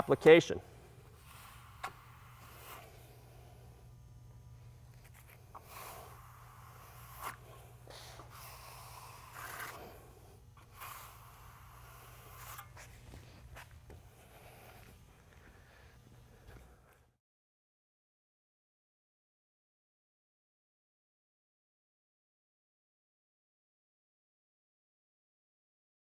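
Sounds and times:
steady low hum: 0.0s - 17.2s
trowel scraping wooden board: 5.1s - 7.6s, 8.2s - 10.0s, 10.6s - 13.0s.

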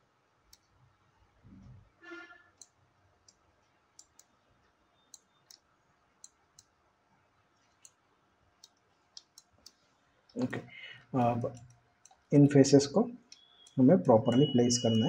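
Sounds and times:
computer mouse and keyboard clicks: 4.0s - 4.3s.

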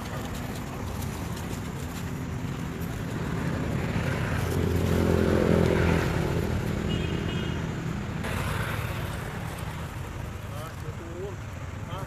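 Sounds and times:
vehicle engine passing: 0.0s - 12.0s.

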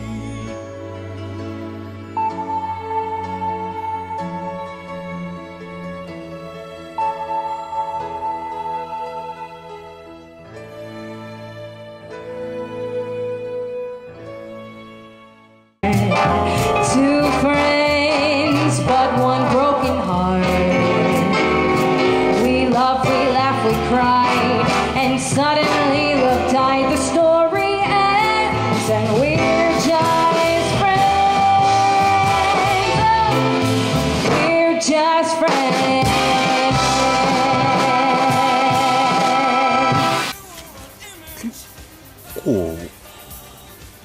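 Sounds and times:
person singing: 35.4s - 44.0s
band with steady drum beat: 35.5s - 44.0s.

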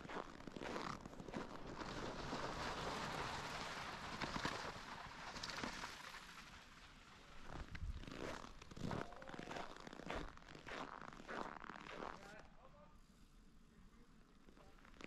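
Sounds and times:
footsteps crunching through snow: 0.0s - 2.5s, 7.4s - 12.4s.

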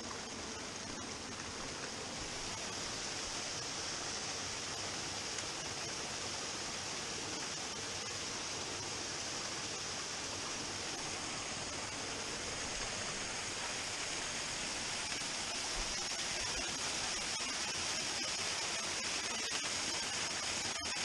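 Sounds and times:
small waterfall splashing into pool: 0.0s - 21.0s.

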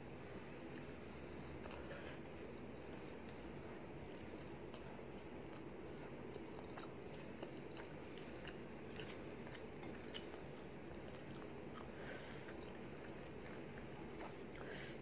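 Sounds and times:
person chewing food: 3.1s - 15.0s.

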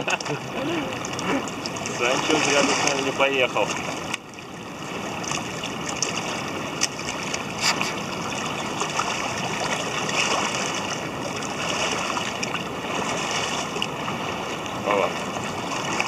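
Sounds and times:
river water rushing: 0.0s - 16.0s.

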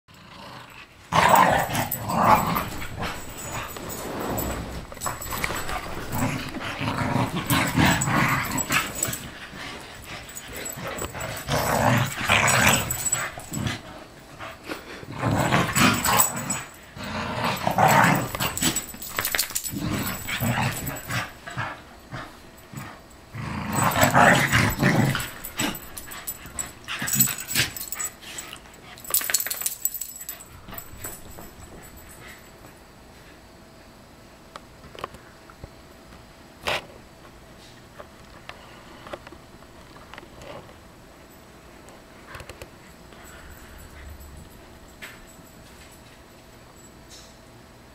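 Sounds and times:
dogs growling: 0.1s - 32.5s.

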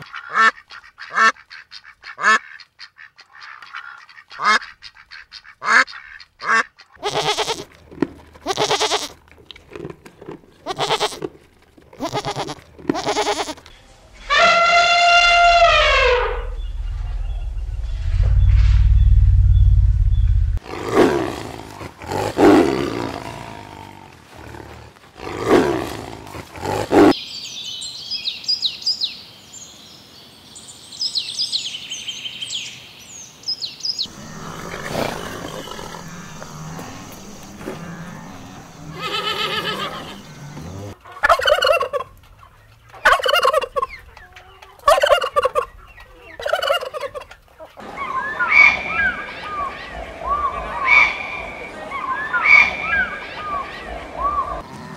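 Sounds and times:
turkey gobbling: 41.0s - 49.0s.

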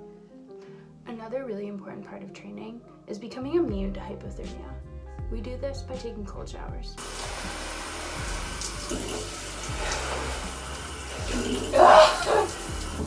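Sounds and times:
shower water spraying: 7.0s - 13.0s
loud yelp: 11.7s - 12.6s.

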